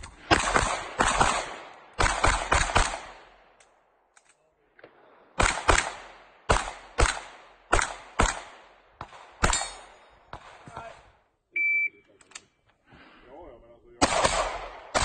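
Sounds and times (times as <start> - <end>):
pistol shots: 0.2 - 3.4, 4.8 - 11.1, 14.0 - 15.0.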